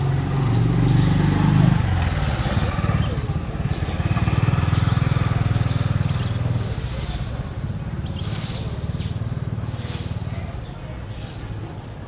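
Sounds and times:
low engine rumble: 0.0 - 12.0
short hisses: 9.7 - 10.4, 11.1 - 11.7.

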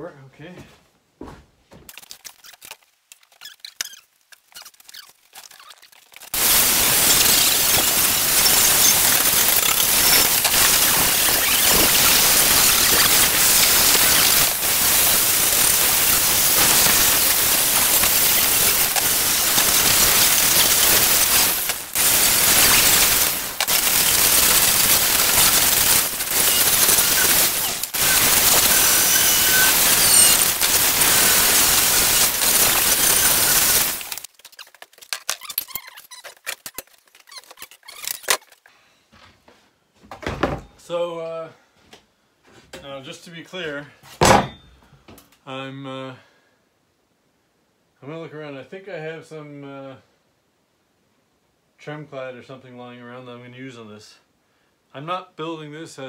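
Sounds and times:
angle grinder wire wheel hissing: 3.4 - 34.3.

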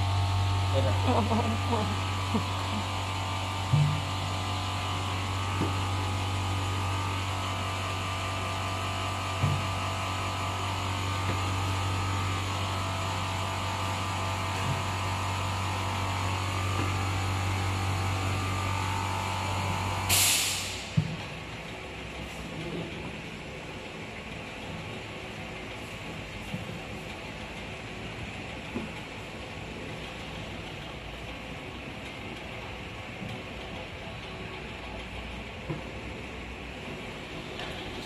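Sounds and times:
electric motor hum: 0.0 - 20.1
short loud hiss: 20.1 - 20.9.

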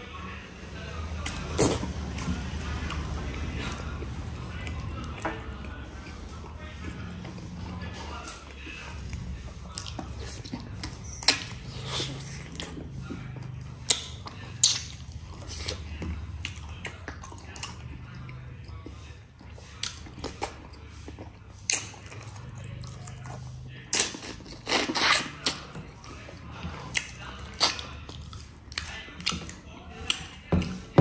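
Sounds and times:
person chewing food: 1.2 - 31.0
wet mouth clicks and smacks: 13.8 - 15.0.

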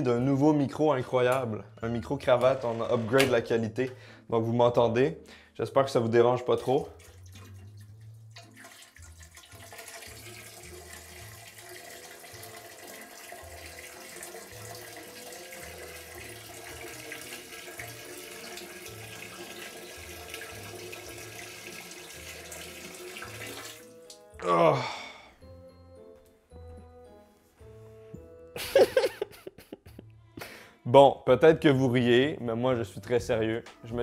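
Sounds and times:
urine splashing into toilet: 6.6 - 24.2.

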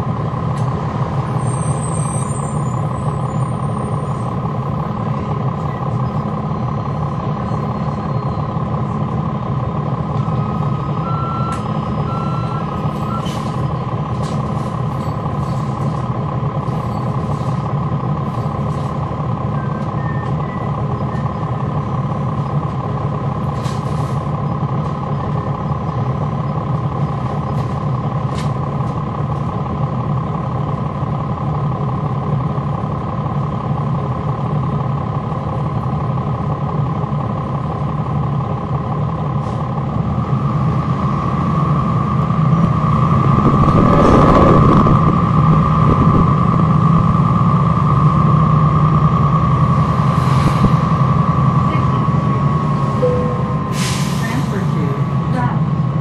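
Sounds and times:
diesel bus engine drone: 0.0 - 56.0
high cooling fan whine: 42.6 - 47.2.

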